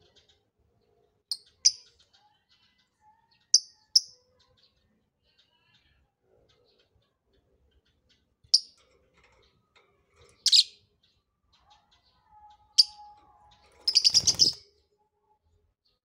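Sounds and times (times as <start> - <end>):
bird chirping shrilly: 13.8 - 14.6.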